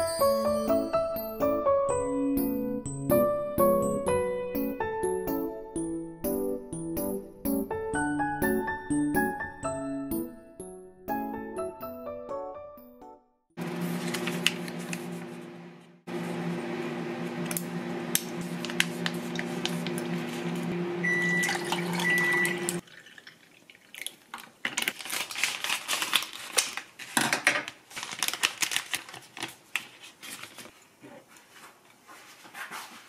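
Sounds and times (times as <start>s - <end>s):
coffee poured over ice: 21.4s - 24.9s.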